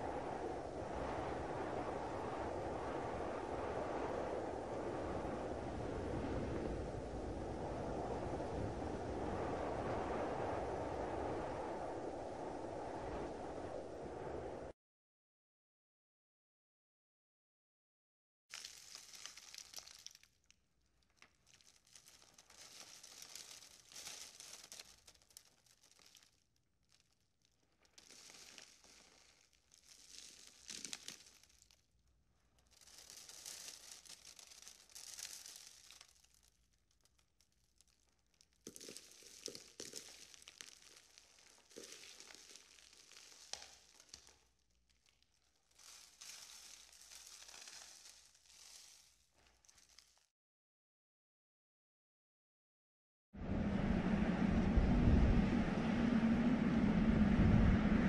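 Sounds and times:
wind blowing in gusts: 0.0s - 14.7s, 53.4s - 58.0s.

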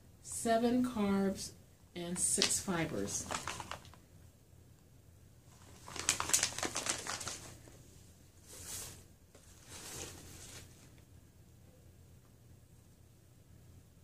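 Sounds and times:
paper filler rustling: 2.4s - 3.9s, 5.6s - 7.8s, 8.4s - 10.9s
plastic pouch crinkling: 2.4s - 4.0s, 5.5s - 7.8s.

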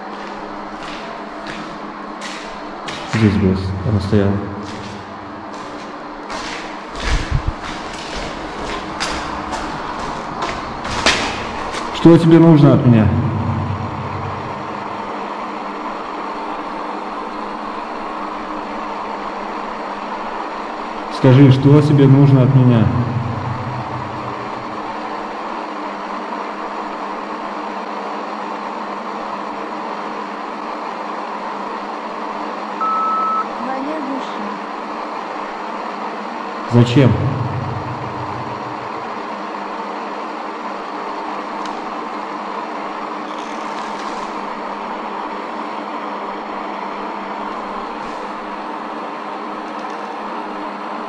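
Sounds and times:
low hum: 0.0s - 18.7s, 36.7s - 39.3s
faint hum: 0.0s - 51.0s.

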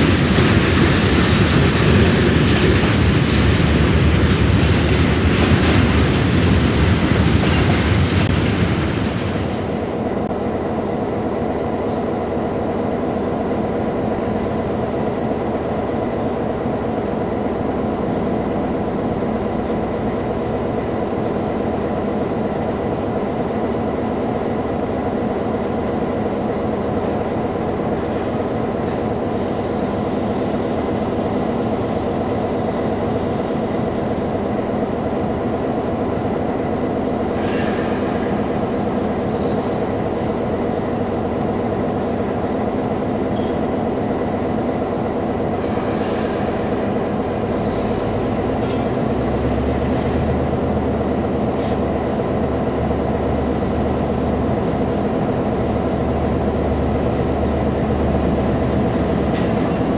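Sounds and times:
train wheels squealing: 0.0s - 6.0s, 26.3s - 27.7s, 28.8s - 30.6s, 37.2s - 40.8s, 45.6s - 49.0s
diesel locomotive engine running: 0.0s - 59.9s.

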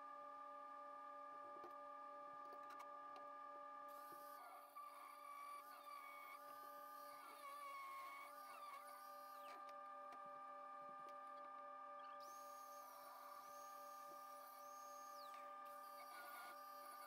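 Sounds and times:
angle grinder whining: 12.1s - 17.0s.

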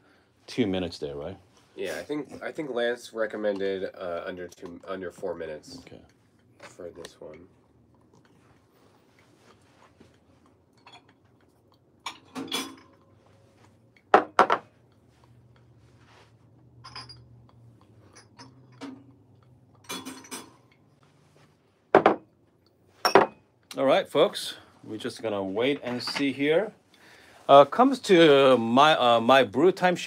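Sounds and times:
knocks on a table: 14.2s - 14.7s, 21.9s - 22.2s
cups clinking: 16.6s - 20.9s, 23.0s - 23.4s.

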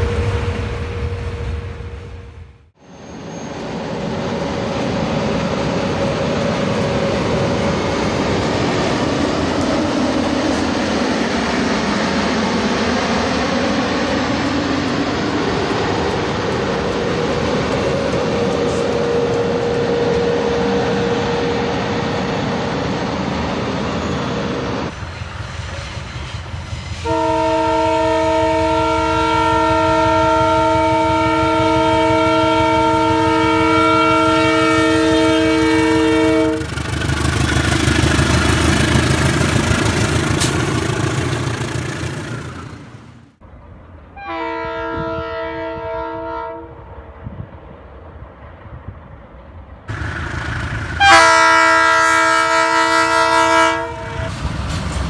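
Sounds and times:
train wheels rumbling on rail: 0.0s - 55.0s
locomotive air horn chord: 27.0s - 36.9s, 44.2s - 46.9s, 51.0s - 54.5s.

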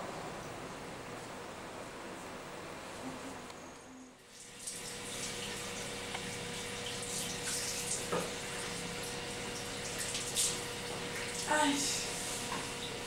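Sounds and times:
faint steady hum: 0.0s - 13.0s
tap water running: 4.2s - 13.0s.

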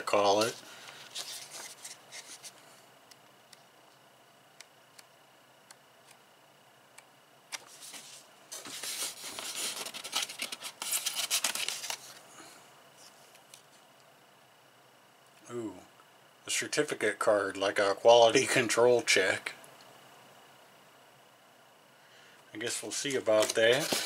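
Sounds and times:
cardboard rustling and scraping: 0.3s - 2.6s, 7.5s - 12.2s, 23.3s - 24.0s.

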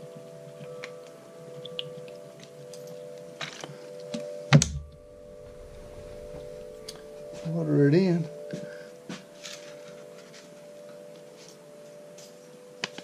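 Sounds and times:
steady hum: 4.5s - 9.1s.

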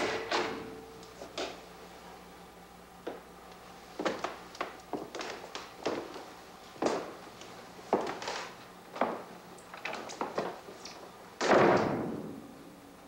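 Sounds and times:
heavy door banging shut: 11.4s - 12.3s.

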